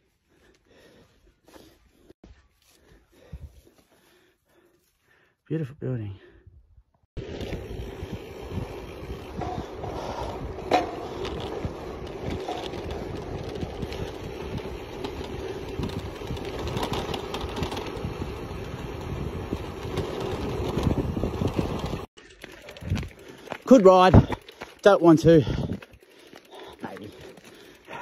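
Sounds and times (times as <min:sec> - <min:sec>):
wind buffeting microphone: 0:06.5 - 0:22.1, 0:25.2 - 0:26.0
bicycle tyres rolling on gravel: 0:07.2 - 0:28.0.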